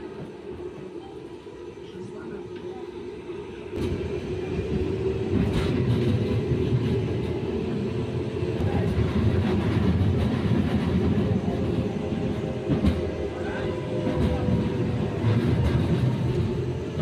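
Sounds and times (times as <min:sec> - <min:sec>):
tram rolling rumble: 0:00.0 - 0:17.0.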